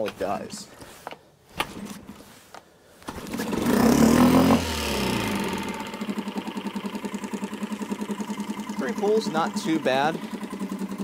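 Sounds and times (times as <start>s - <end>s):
outboard motor pull-start: 3.0s - 11.0s
outboard motor idling: 3.3s - 11.0s.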